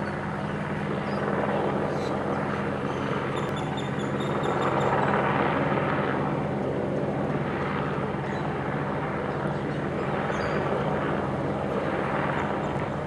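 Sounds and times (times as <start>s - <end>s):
helicopter hovering: 0.0s - 13.0s.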